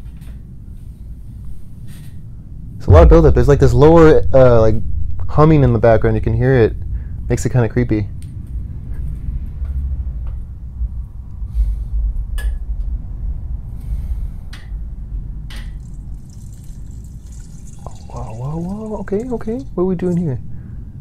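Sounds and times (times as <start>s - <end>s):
low humming drone: 0.0s - 21.0s.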